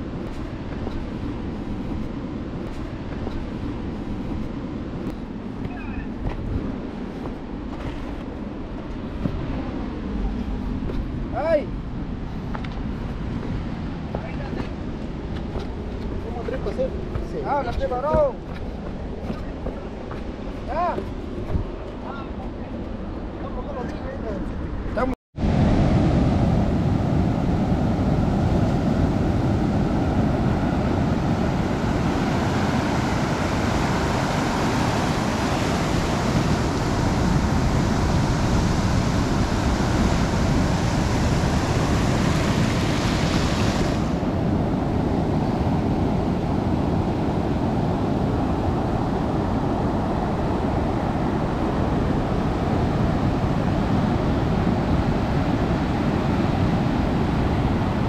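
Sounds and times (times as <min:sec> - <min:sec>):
wind buffeting microphone: 0:00.0 - 0:58.0
sea surf breaking: 0:25.4 - 0:58.0.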